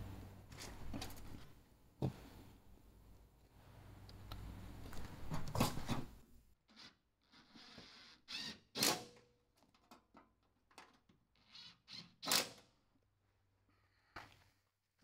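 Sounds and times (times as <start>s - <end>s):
cordless drill whirring: 6.8s - 8.8s.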